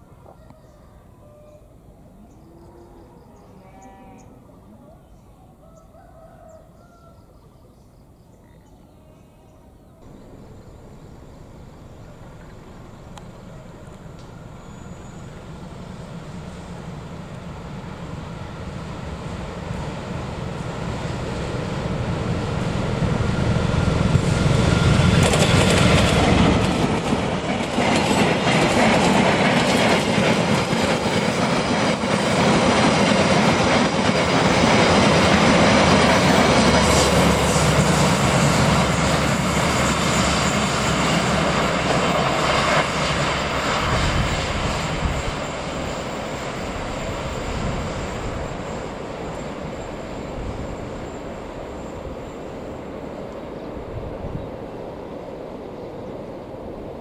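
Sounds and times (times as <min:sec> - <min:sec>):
locomotive engine rumbling: 0:10.0 - 0:55.8
faint wheel squeal: 0:14.2 - 0:15.4
train wheels clickety-clack: 0:23.3 - 0:46.6.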